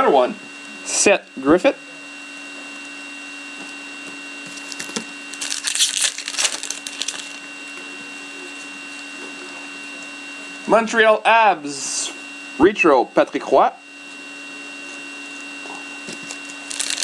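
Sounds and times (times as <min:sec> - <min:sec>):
steady electrical hum: 0:00.0 - 0:17.0
foil pack crinkling and tearing: 0:04.4 - 0:07.5, 0:16.0 - 0:17.0.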